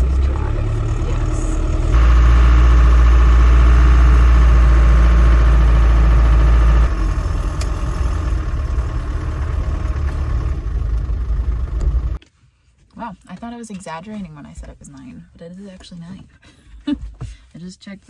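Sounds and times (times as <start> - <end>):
truck engine and road noise rumble: 0.0 - 12.2.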